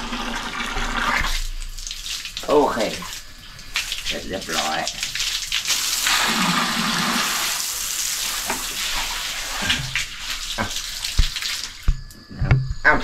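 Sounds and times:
hose water splashing on concrete: 0.0 - 12.0.

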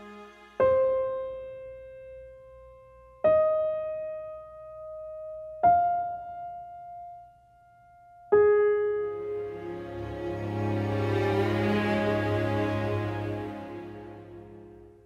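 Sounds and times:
slow solo piano: 0.6 - 9.8.

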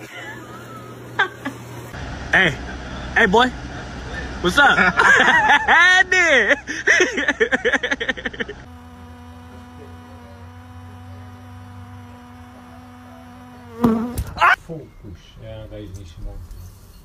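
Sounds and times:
hoverfly wings buzzing: 8.6 - 14.4.

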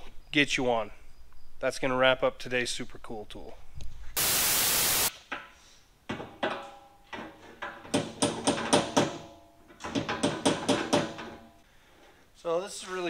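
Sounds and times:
burst of hiss-like noise: 4.2 - 5.1
sharp knocks with ringing tones: 7.9 - 11.6.

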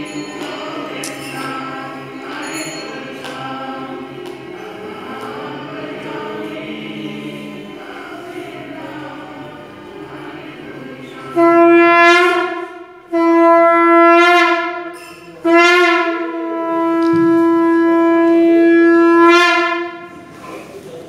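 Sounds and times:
conch shell blasts: 11.3 - 20.3.

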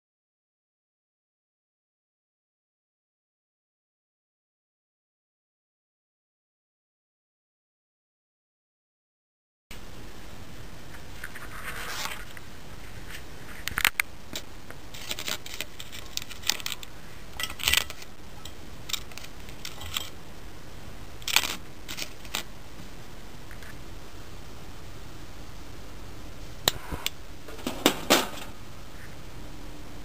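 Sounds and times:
faint steady hiss: 9.7 - 30.0.

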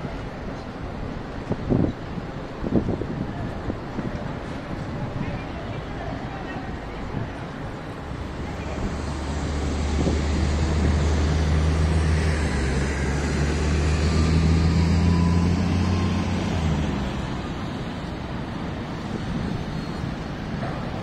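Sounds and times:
street traffic noise: 0.0 - 21.0
heavy vehicle engine humming: 4.2 - 21.0.

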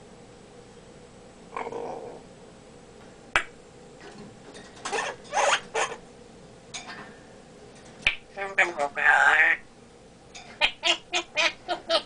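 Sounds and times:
parrot raspy noises: 4.9 - 6.0, 8.0 - 9.7, 10.6 - 12.0.

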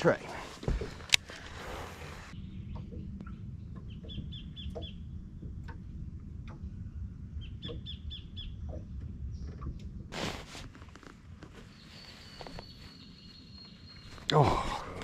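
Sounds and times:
low steady rumble: 0.2 - 15.0
bird chirping: 2.3 - 5.2, 7.3 - 9.6, 11.6 - 15.0.

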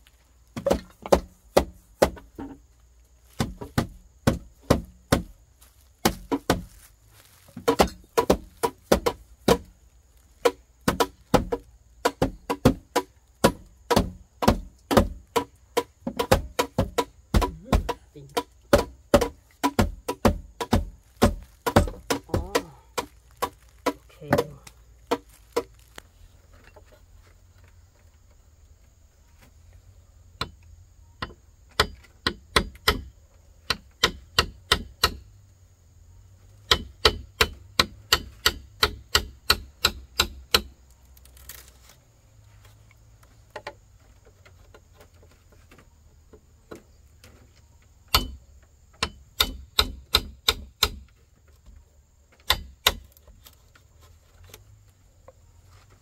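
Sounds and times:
hand tool knocking: 7.6 - 9.7, 10.4 - 25.7, 48.1 - 48.4, 49.0 - 51.0.

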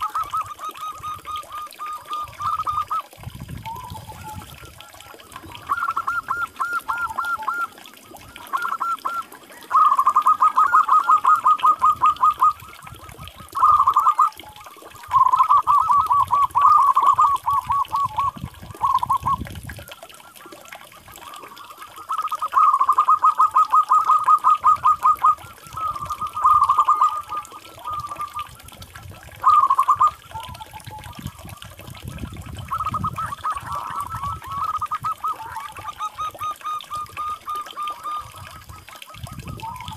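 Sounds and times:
dove cooing in staccato notes: 3.7 - 39.9.

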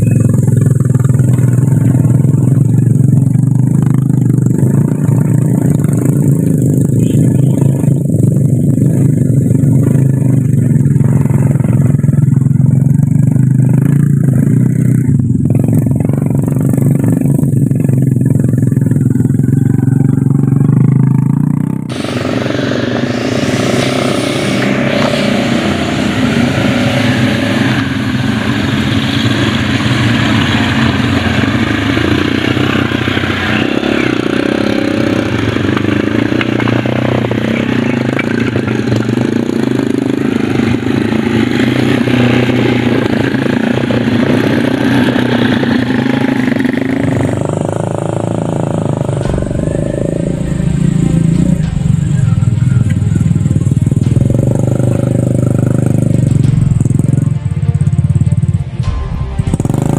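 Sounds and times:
motorcycle engines running: 0.0 - 59.9
hiss: 21.9 - 33.9.

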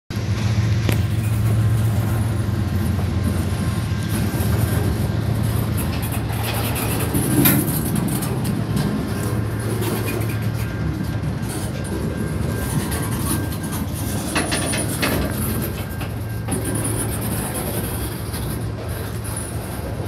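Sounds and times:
steel wheels rolling on rails: 0.1 - 20.0.

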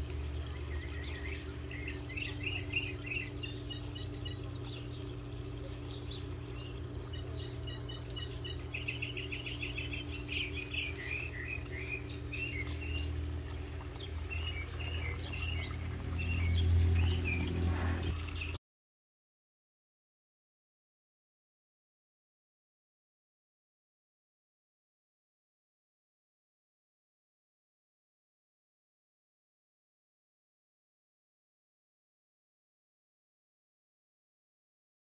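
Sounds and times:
birds chirping and trilling: 0.0 - 18.6
waterfall pouring into pond: 0.0 - 18.6.

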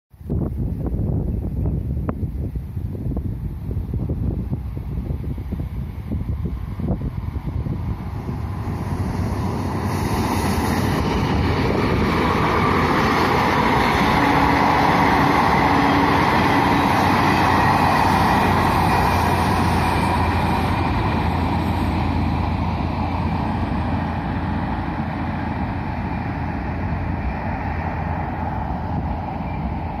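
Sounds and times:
diesel train passing at speed: 0.2 - 30.0.

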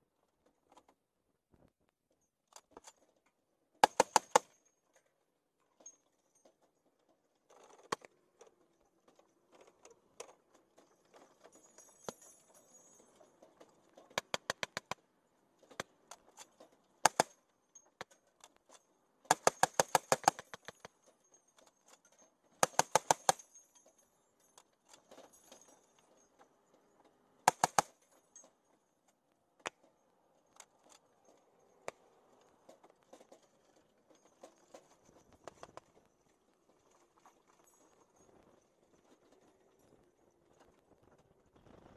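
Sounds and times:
heavy machine gun bursts: 3.8 - 4.5, 19.3 - 20.8, 22.6 - 23.4, 27.5 - 28.0.

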